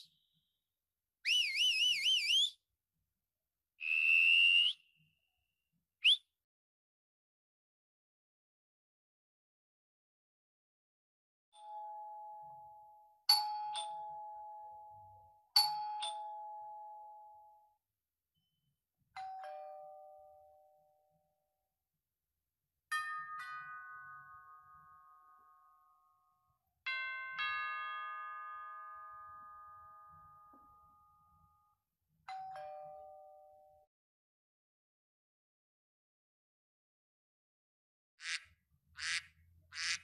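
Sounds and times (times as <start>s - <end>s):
doorbell chimes ding-dong: 26.9s - 31.4s, 32.3s - 33.9s.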